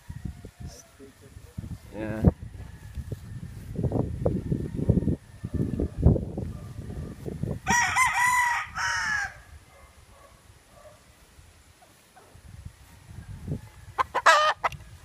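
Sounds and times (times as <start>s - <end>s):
rooster crowing: 2.2s - 6.0s, 7.6s - 9.6s, 12.9s - 14.7s.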